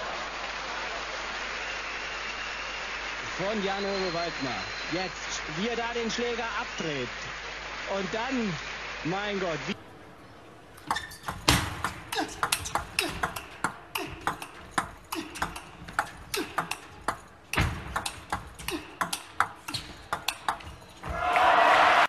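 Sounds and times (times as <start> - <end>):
crowd applause: 0.0 - 5.6, 21.1 - 22.0
table tennis ball clicking: 10.8 - 21.0.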